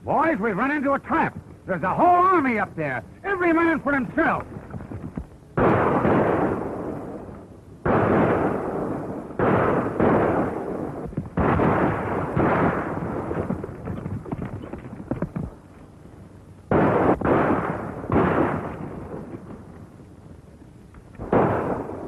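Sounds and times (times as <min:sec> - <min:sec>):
loud ringing gunshots: 0:05.6 - 0:13.6, 0:16.7 - 0:19.3, 0:21.2 - 0:22.0
rapid crackle: 0:11.0 - 0:22.0.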